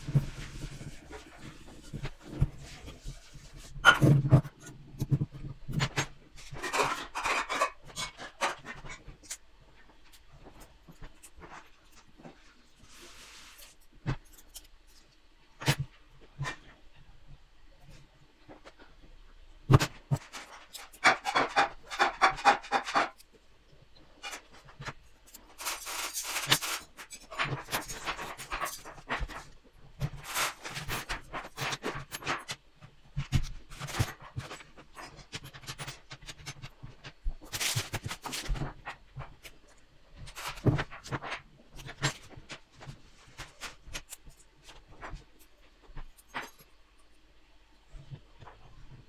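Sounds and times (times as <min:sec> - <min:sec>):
rustling and clicking: 0:24.0 - 0:47.2.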